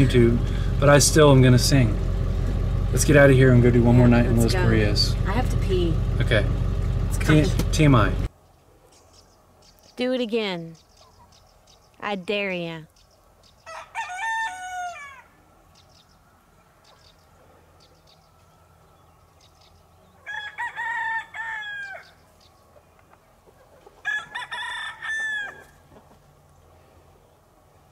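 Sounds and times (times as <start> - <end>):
rooster crowing: 13.6 - 15.5, 20.1 - 22.2, 24.0 - 25.9.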